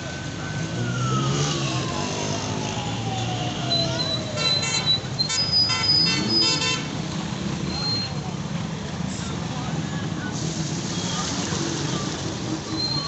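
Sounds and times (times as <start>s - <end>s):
siren-like tone: 0.1s - 5.0s
vehicle horn honks: 4.4s - 6.9s.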